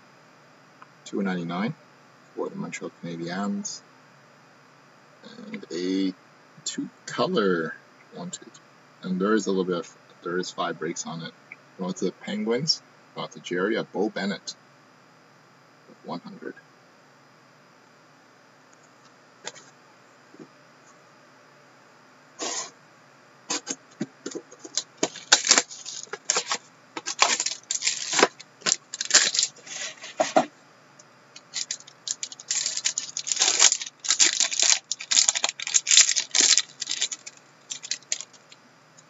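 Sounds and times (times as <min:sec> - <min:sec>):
plastic wrapping torn and crinkled: 0:24.6 - 0:30.5, 0:31.4 - 0:38.5.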